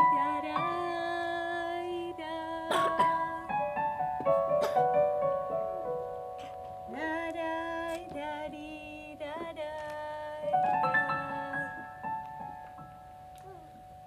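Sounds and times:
person singing long notes: 0.0 - 3.7, 6.9 - 12.0
electric keyboard chords: 0.0 - 9.3, 10.5 - 14.0.

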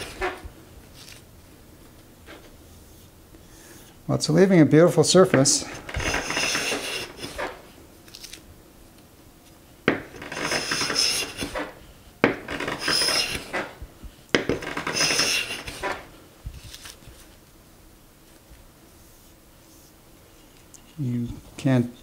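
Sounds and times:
hand plane scraping wood: 0.0 - 0.4, 5.7 - 7.6, 9.9 - 13.8, 14.4 - 16.1.

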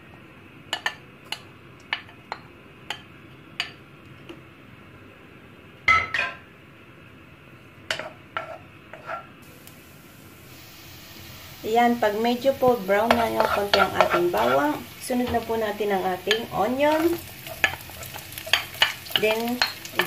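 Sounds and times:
spoons clinking against bowl and wok: 13.0 - 14.6, 16.2 - 20.0.

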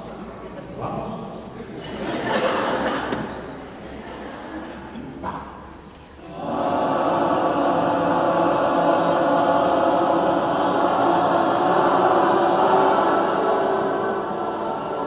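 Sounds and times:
group of voices singing chord: 6.2 - 15.0.

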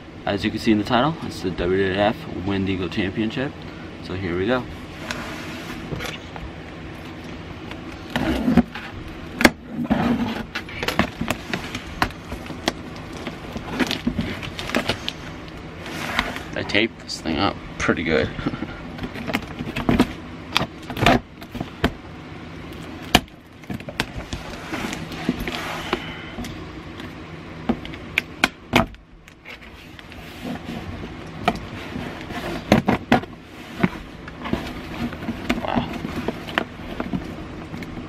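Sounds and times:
packing tape tearing and crackling: 10.6 - 15.6.

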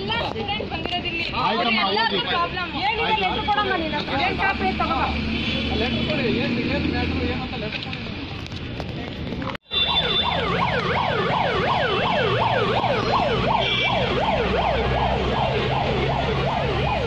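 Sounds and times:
electronic siren yelping: 9.7 - 17.0.

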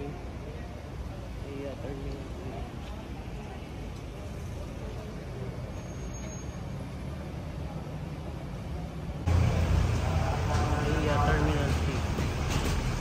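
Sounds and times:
low rumble of road traffic: 0.0 - 13.0
close voices: 9.3 - 12.8.

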